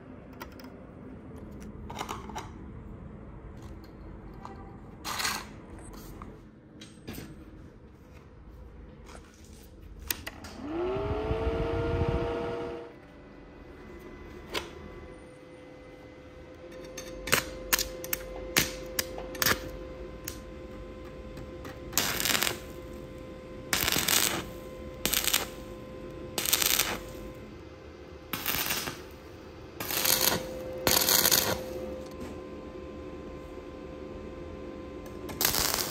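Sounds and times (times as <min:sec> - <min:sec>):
welder humming: 0:10.3 - 0:35.9
welding arc crackling: 0:21.1 - 0:27.5, 0:28.3 - 0:32.0, 0:35.1 - 0:35.9.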